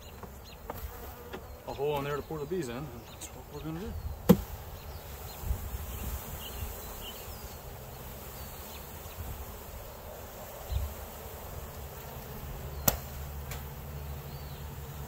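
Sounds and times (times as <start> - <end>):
bees buzzing: 0.0 - 15.0
dull thump: 4.2 - 4.6.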